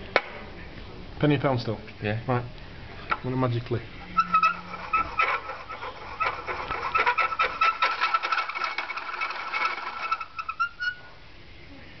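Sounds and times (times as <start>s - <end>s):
cup squeaking on table: 4.1s - 11.1s.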